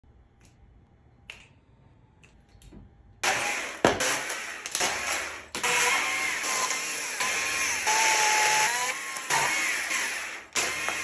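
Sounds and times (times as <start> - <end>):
chainsaw cutting log: 3.2 - 11.0.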